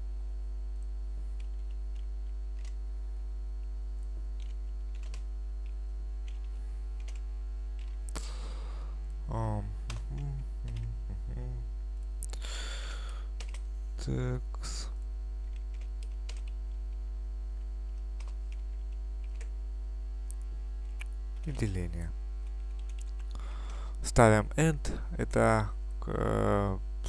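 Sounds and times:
low mains hum: 0.0 - 27.0
computer keyboard clicking: 4.4 - 7.2, 7.8 - 8.0, 13.1 - 13.6, 15.5 - 16.8, 17.9 - 19.5, 22.5 - 23.4
person muttering: 9.3 - 11.7.

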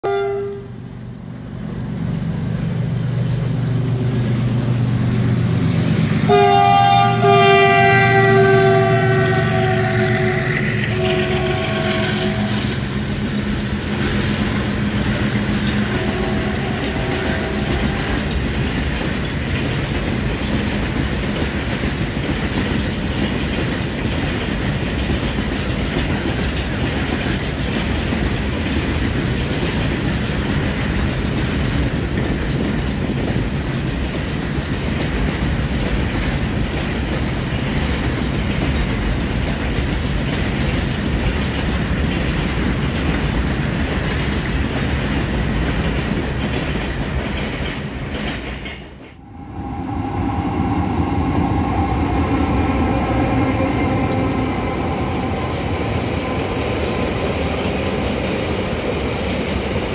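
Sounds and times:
locomotive multi-tone horn: 0.0 - 0.8, 6.3 - 13.0, 15.8 - 18.2, 52.3 - 57.2
freight train wheels clattering: 7.2 - 49.2, 49.9 - 59.9.

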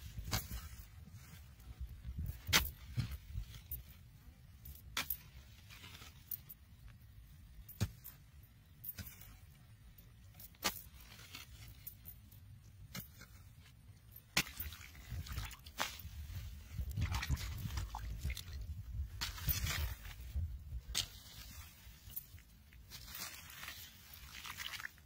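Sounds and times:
clods rustling and scraping: 0.0 - 7.0, 7.6 - 25.0
hoe chopping into hard soil: 2.3 - 3.2.

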